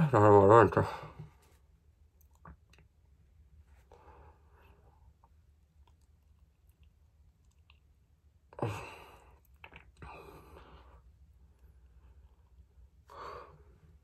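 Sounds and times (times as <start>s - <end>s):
man sighing heavily: 8.6s - 9.3s.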